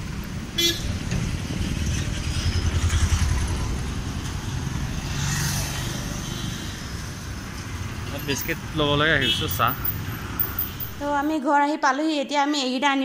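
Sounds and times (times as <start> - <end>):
vehicle passing by: 0.9 - 11.0.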